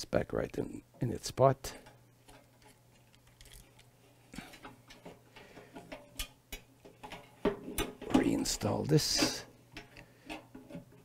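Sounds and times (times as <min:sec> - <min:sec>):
plastic clicks and rustles: 0:02.2 - 0:08.3.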